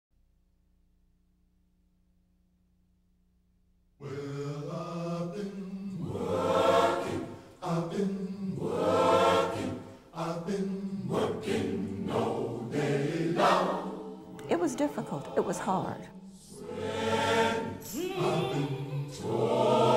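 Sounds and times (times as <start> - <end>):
choir singing held chords: 4.0 - 19.9.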